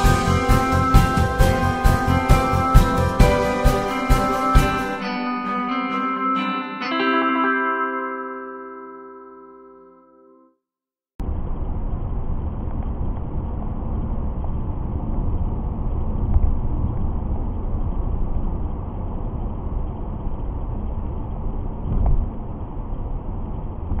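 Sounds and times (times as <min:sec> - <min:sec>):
car engine and tyre noise: 0:11.2 - 0:24.0
rumble: 0:11.2 - 0:24.0.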